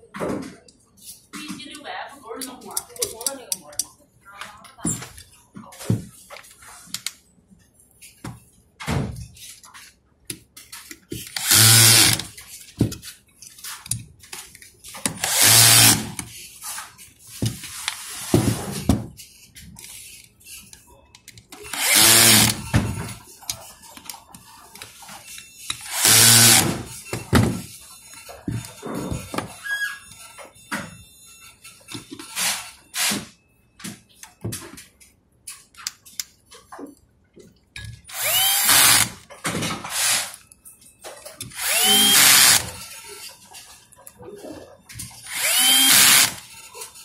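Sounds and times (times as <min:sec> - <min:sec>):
cordless drill bursts: 0:11.4 - 0:12.2, 0:15.2 - 0:16.1, 0:21.7 - 0:22.6, 0:25.9 - 0:26.9, 0:38.1 - 0:39.1, 0:41.6 - 0:42.7, 0:45.3 - 0:46.5
tools and parts clicking: 0:37.8 - 0:44.2, 0:44.9 - 0:47.0.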